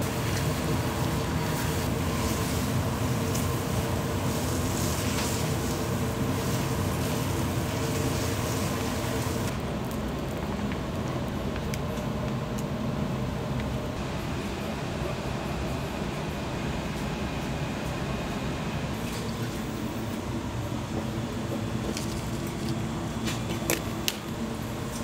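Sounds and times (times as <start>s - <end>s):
hiss: 0.0s - 9.5s
kitchen equipment humming: 0.0s - 25.0s.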